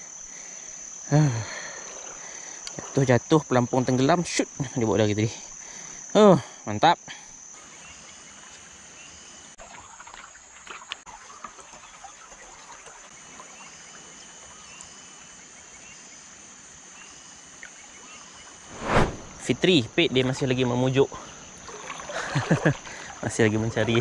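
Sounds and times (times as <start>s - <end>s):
high-pitched insect drone: 0.0s - 9.6s.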